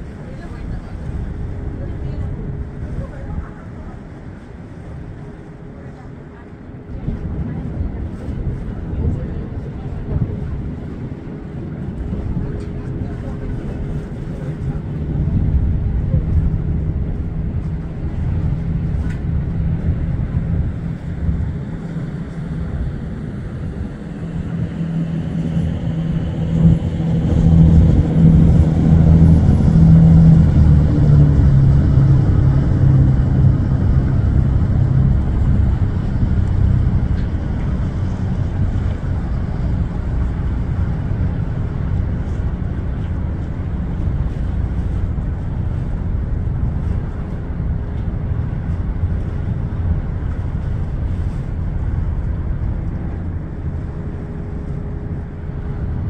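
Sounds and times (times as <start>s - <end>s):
boat engine droning: 0.0s - 56.0s
water noise: 0.0s - 56.0s
wind on microphone: 0.0s - 56.0s.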